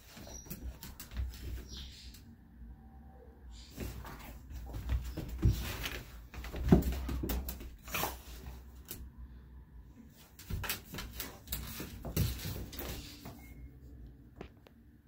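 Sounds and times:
dog moving on tile floor: 0.0s - 2.1s, 3.7s - 9.0s, 10.1s - 13.7s.

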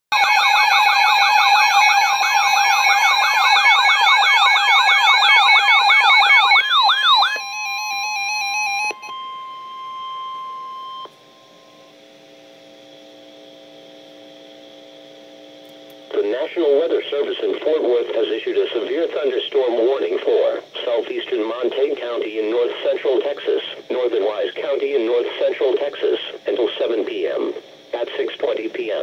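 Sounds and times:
warbling electronic siren: 0.1s - 12.0s
faint steady hum: 0.2s - 29.0s
steady electronic beep: 1.0s - 11.9s.

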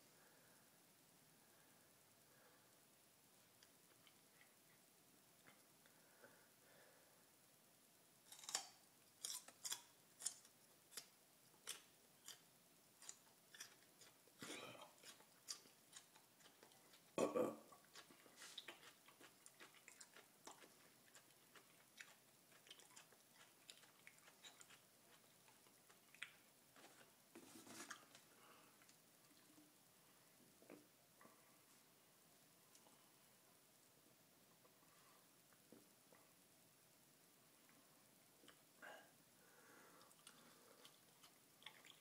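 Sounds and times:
garlic crunching while chewed: 8.3s - 27.1s.

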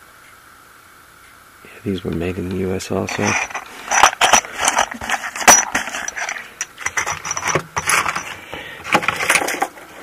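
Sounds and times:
tools rattling in metal box: 3.1s - 9.8s.

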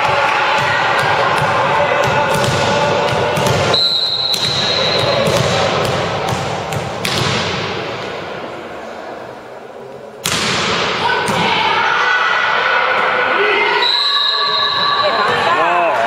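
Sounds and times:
referee's whistle: 3.7s - 5.2s, 13.7s - 15.3s.

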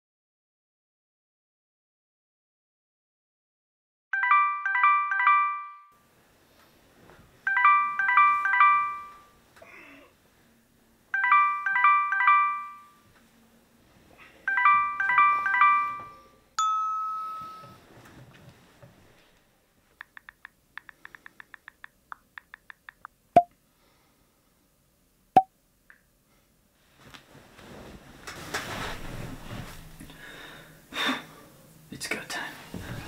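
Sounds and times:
smartphone alarm chiming melody: 4.2s - 6.0s, 7.5s - 9.4s, 11.2s - 13.1s, 14.5s - 17.8s
notification chime: 7.5s - 9.3s, 11.2s - 13.0s, 14.5s - 17.8s
on-screen keyboard clicks: 20.0s - 23.5s.

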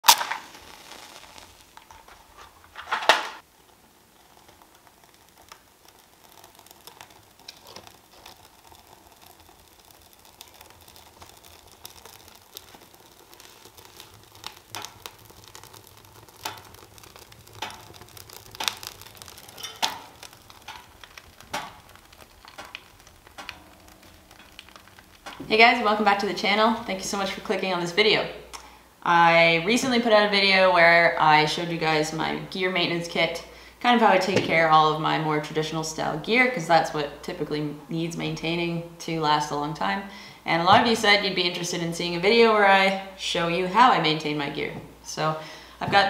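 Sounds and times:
wood fire crackling and popping: 0.0s - 46.0s.

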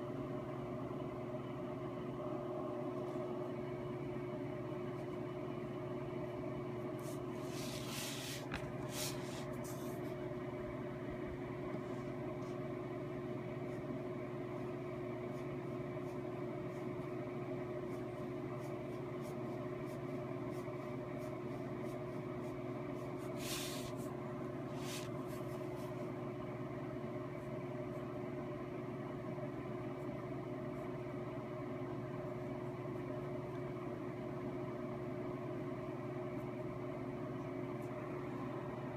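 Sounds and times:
steady mechanical hum: 0.0s - 38.9s
soft rustling: 7.0s - 10.1s.

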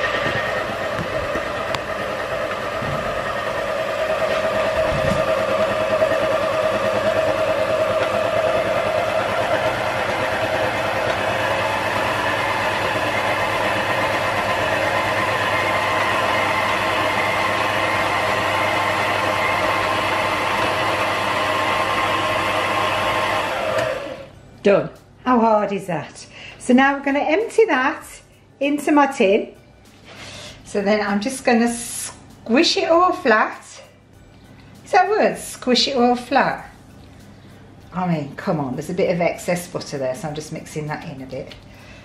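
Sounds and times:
stand mixer motor whine: 0.0s - 24.4s.

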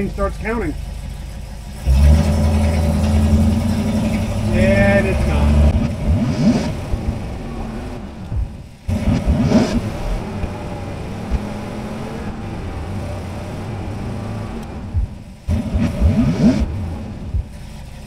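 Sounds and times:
pickup truck engine revving: 0.0s - 18.0s.

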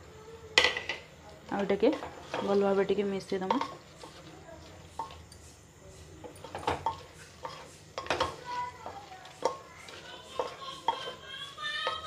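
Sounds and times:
spoon scraping metal pot: 6.4s - 8.6s.

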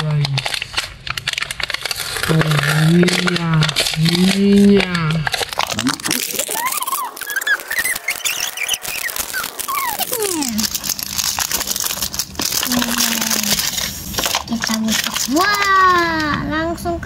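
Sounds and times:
plastic wrap crinkling and tearing: 0.0s - 16.6s
squeaky sliding tones: 6.4s - 10.5s.

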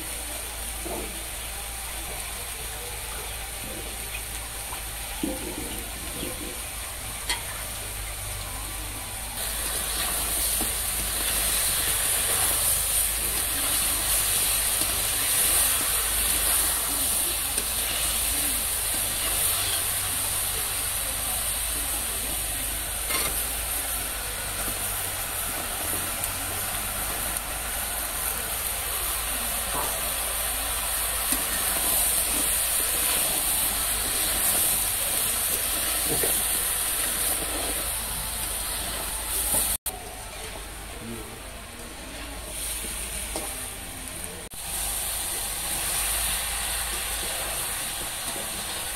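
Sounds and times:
meat sizzling in a pan: 9.4s - 39.8s, 44.5s - 48.9s.

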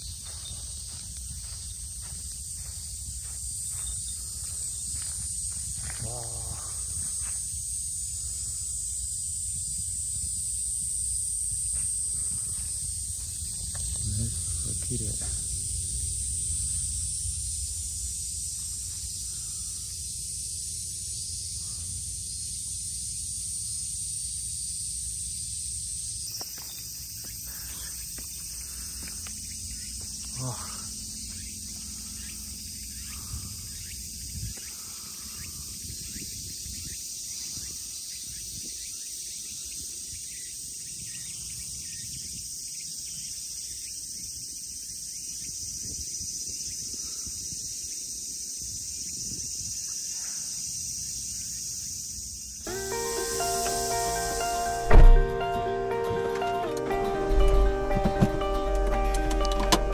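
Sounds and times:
shrill insect buzzing: 0.0s - 58.7s
wind on microphone: 4.0s - 19.6s, 32.9s - 38.9s, 45.4s - 49.9s.

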